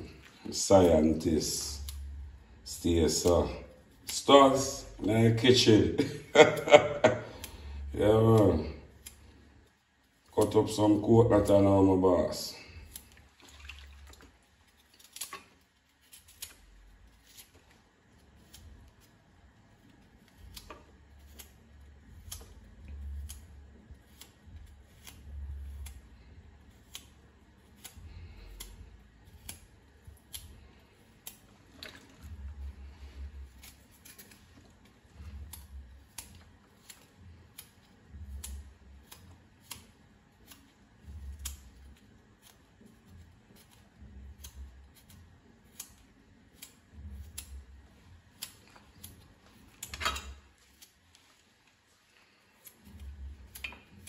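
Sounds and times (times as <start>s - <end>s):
knife cutting coconut clicks: 20.2s - 26.0s, 26.8s - 30.6s.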